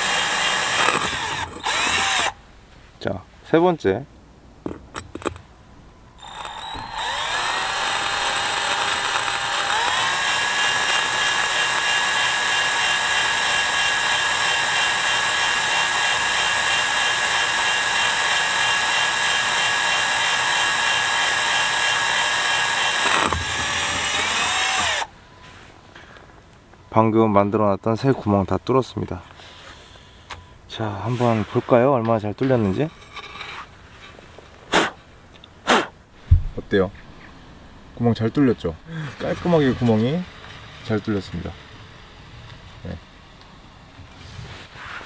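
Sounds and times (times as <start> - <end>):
cordless drill boring tile: 0.0 - 2.4, 6.2 - 25.1.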